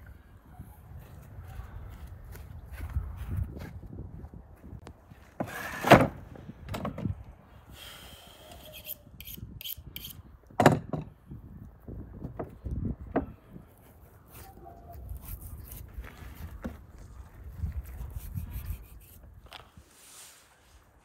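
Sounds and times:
scraping and rubbing: 14.4 - 20.5.

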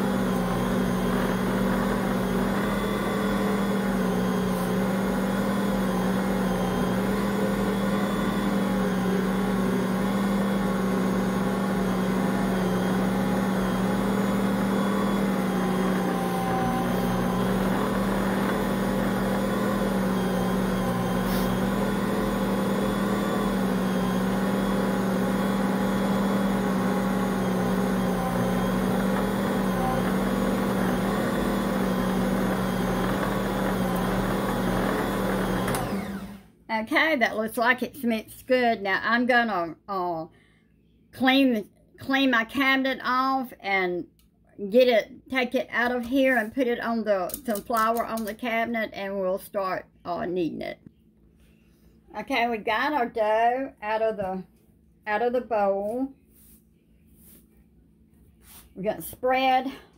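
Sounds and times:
stand mixer humming: 0.0 - 36.4.

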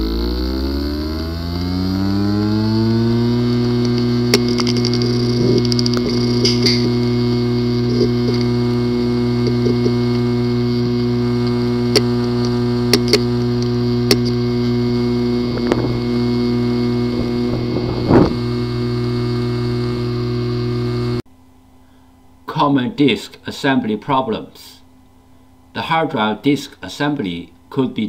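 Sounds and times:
hard drive humming: 0.0 - 22.2
rough burst of noise: 2.4 - 20.7
hard drive clicking: 3.3 - 21.2.

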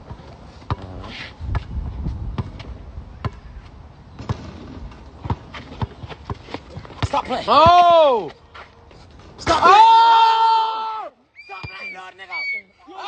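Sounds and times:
basketball bouncing on asphalt: 0.0 - 8.4.

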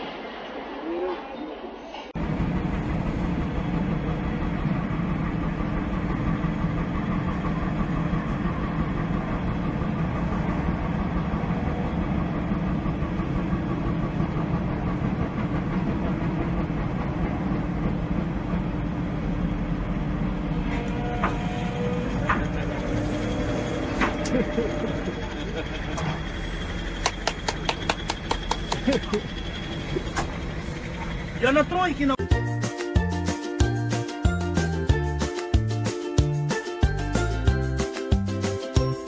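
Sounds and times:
diesel engine droning: 2.2 - 32.4.

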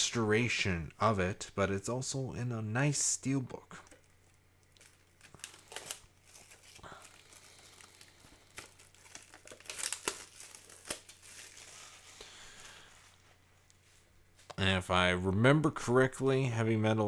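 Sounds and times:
plastic wrap crinkling and tearing: 3.9 - 13.2.

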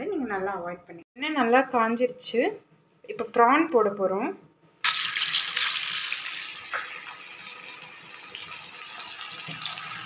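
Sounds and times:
prawns deep-frying in oil: 4.8 - 10.0.

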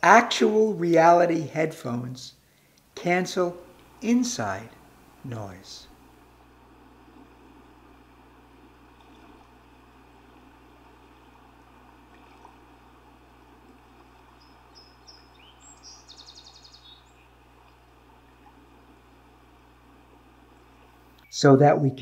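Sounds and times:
outdoor background hiss: 0.0 - 22.0
songbird calling and trilling: 14.2 - 17.4.

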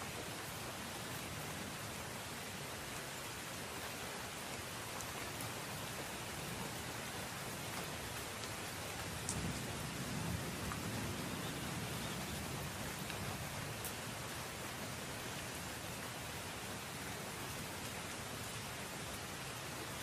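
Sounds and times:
steady rain hiss: 0.0 - 20.0
raindrop ticks: 7.7 - 9.8, 10.6 - 14.0.

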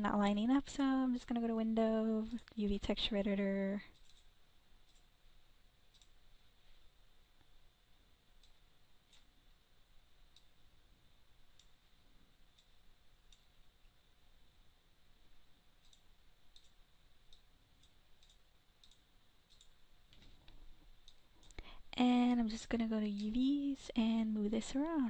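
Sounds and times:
low steady hiss: 0.0 - 25.0
faint computer mouse clicks: 5.9 - 6.2, 15.8 - 21.7.

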